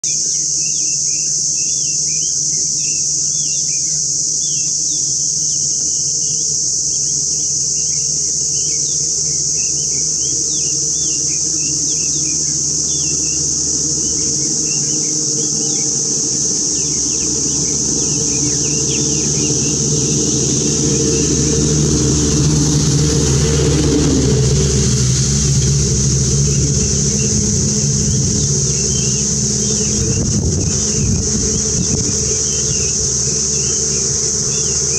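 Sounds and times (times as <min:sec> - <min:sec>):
high-pitched insect drone: 0:00.1 - 0:34.9
low steady hum: 0:12.6 - 0:34.9
birds whistling calls: 0:14.0 - 0:34.9.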